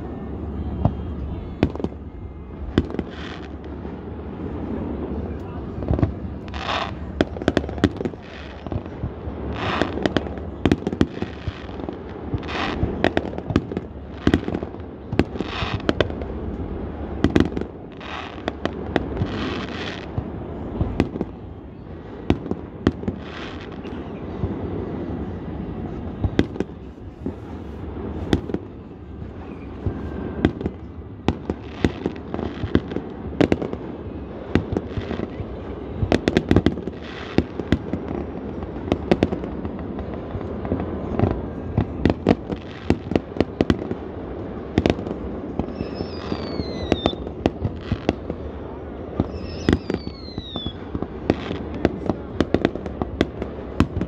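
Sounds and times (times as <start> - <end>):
fireworks bangs and crackling: 0.0 - 54.0
falling firework whistles: 45.6 - 48.2, 49.2 - 51.6.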